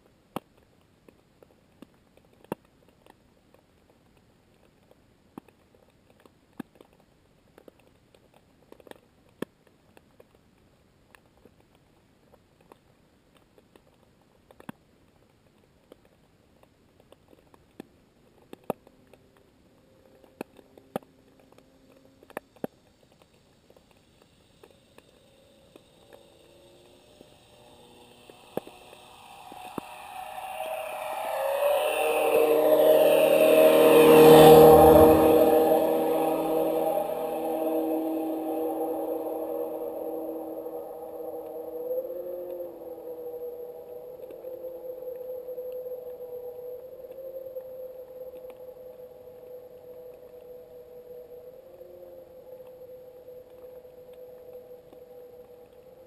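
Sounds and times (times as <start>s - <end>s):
motorboat engine underwater: 24.4s - 56.0s.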